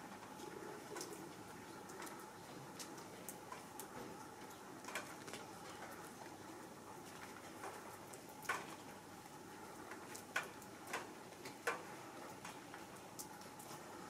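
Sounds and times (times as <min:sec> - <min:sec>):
faint outdoor hiss: 0:00.0 - 0:14.0.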